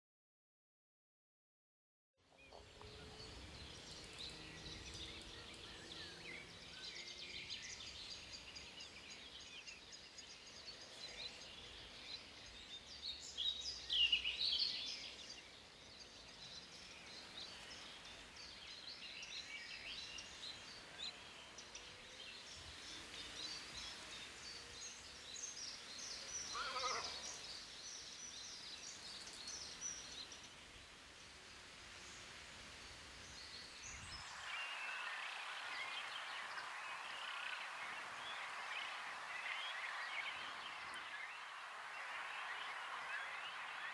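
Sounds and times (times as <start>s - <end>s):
small birds chirping: 2.3s - 43.9s
short low animal cry: 26.5s - 27.2s.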